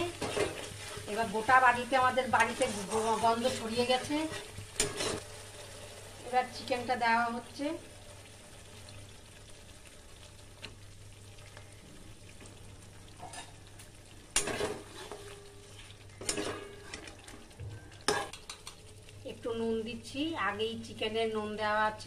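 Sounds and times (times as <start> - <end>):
spatula scraping pan: 0.0 - 1.3, 2.0 - 5.2, 14.4 - 17.1
food sizzling in pan: 0.0 - 22.0.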